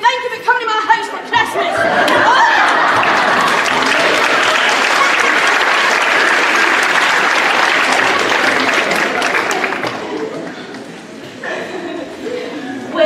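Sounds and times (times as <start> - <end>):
audience applauding: 1.8 - 10.9.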